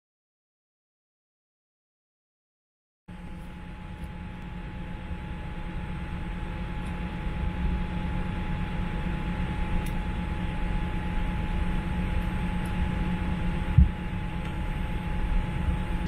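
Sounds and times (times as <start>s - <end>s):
aircraft cabin rumble: 3.1s - 16.0s
mid-pitched hum: 3.1s - 16.0s.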